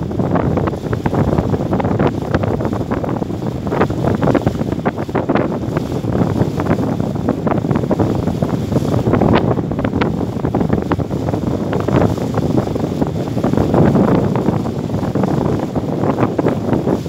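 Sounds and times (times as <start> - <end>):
choppy river water: 0.0 - 17.0
wind buffeting microphone: 0.0 - 17.0.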